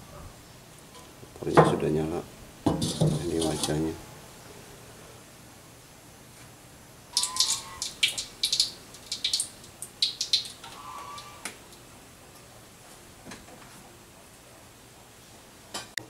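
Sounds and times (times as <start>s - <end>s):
bottle squeaks: 7.2s - 7.9s.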